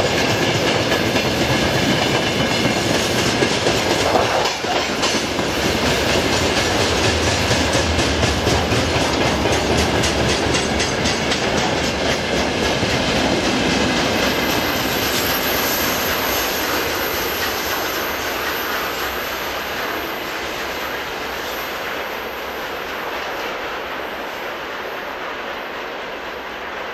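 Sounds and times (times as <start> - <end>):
wheels clacking over rail joints: 0.0 - 20.2
freight train rumbling past: 0.0 - 26.9.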